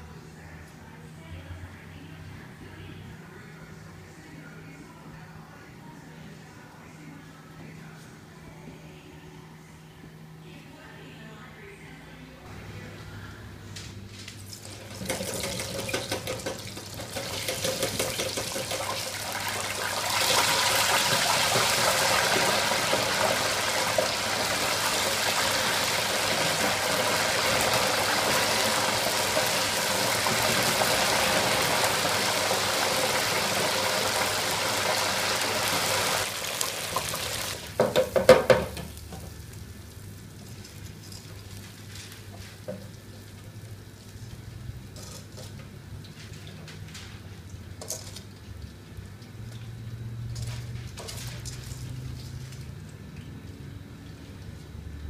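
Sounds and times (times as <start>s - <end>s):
crabs sizzling in deep fryer oil: 14.6s - 55.0s.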